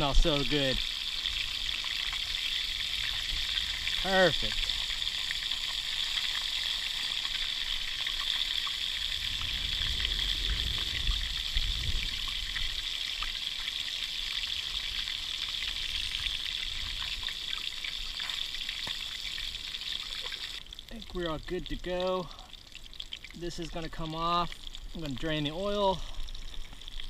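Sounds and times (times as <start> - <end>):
fish frying in oil: 0.0 - 27.0
wind rumble on microphone: 9.0 - 12.8.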